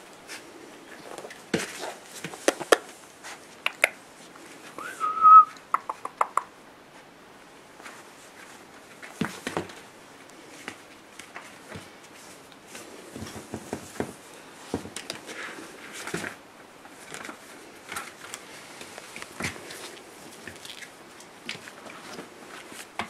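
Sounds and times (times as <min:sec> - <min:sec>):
high whistle-like tone: 0:04.8 - 0:05.6.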